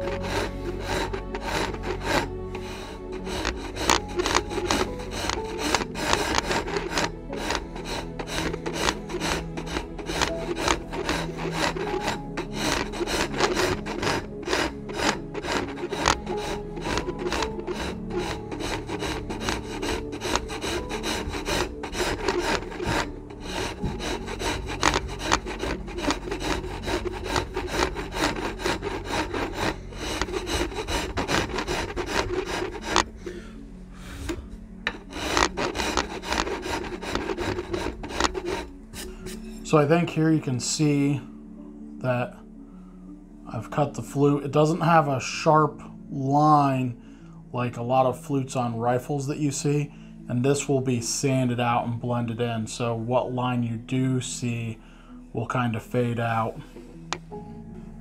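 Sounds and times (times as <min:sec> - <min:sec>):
hand file rasping wood: 0:00.0 - 0:41.3.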